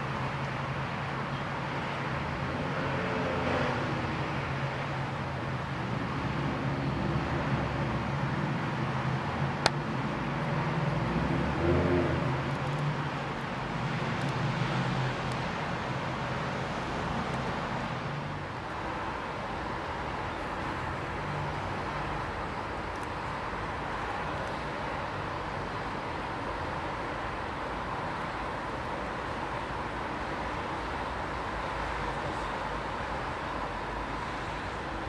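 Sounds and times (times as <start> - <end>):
traffic noise: 0.0 - 35.0.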